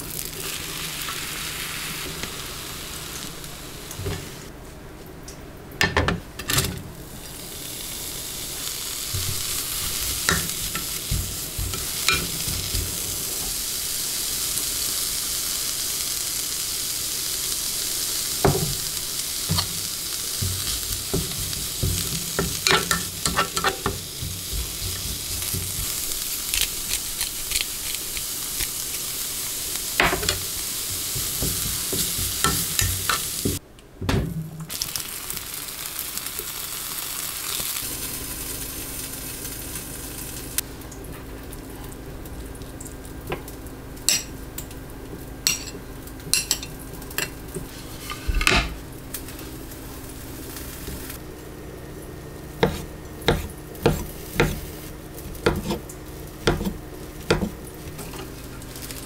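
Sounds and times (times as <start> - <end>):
food sizzling in a frying pan: 0.0 - 4.5, 7.0 - 33.6, 34.6 - 59.0
steady low hum: 8.1 - 13.9, 18.4 - 34.7
utensil stirring and scraping: 20.4 - 28.8, 52.6 - 58.3.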